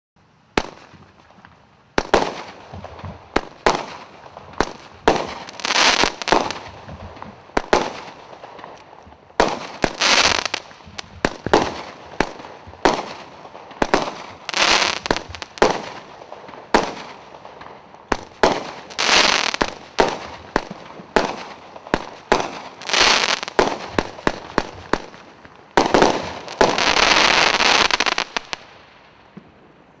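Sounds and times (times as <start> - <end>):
hissing crackling firework bursts: 3.3 - 6.8, 9.4 - 25.2, 25.8 - 28.8.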